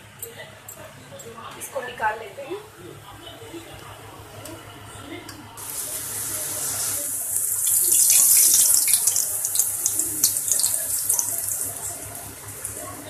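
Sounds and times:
dough sizzling in hot oil: 5.6 - 13.0.

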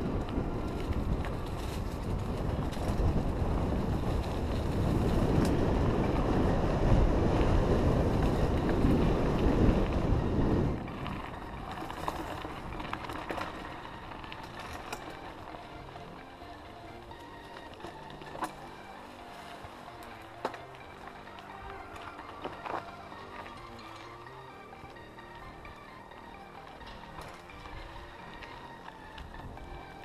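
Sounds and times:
wind rushing over microphone: 0.0 - 16.0
bike knocks and rattles: 10.9 - 24.5.

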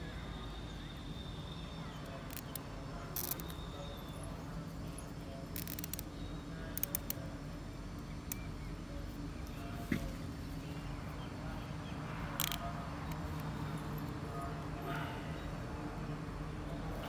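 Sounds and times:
steady low hum: 0.0 - 17.0
cable ties clicking: 2.2 - 3.6, 5.5 - 6.1, 6.7 - 7.2, 12.4 - 13.6.

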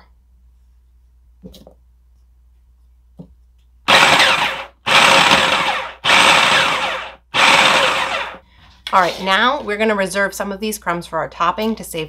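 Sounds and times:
food processor motor pulsing: 3.9 - 8.4.

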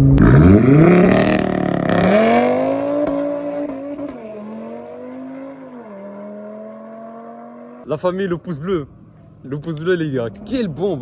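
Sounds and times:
car engine accelerating: 0.0 - 7.9.

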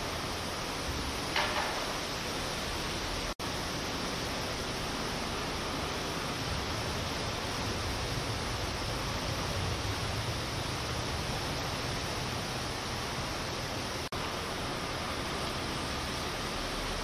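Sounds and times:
river rushing over a weir: 0.0 - 17.0.

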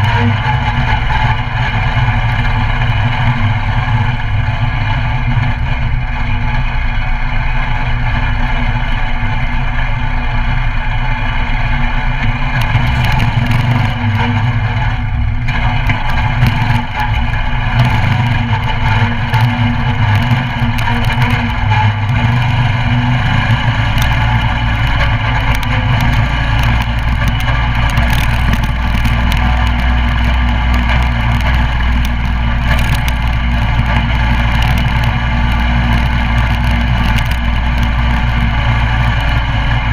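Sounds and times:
mini bike engine running: 0.0 - 39.9
knocks and rattles: 12.2 - 39.9.

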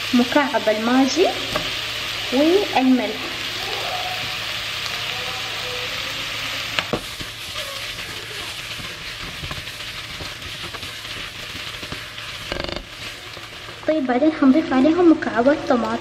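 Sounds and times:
chicken and onion sizzling in oil: 0.0 - 16.0
spatula scraping a pan: 6.9 - 13.8.

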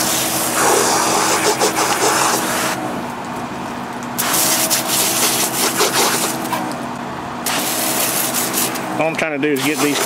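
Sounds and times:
pump humming: 0.0 - 10.0
water jet hissing against boot: 0.1 - 2.8, 4.2 - 6.4, 7.5 - 8.8, 9.6 - 10.0.

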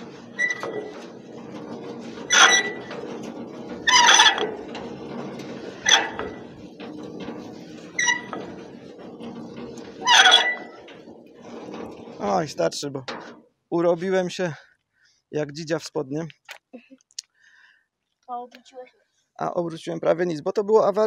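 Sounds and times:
crank gearbox squeaking: 0.0 - 13.4
low grinding rumble: 0.0 - 14.6.

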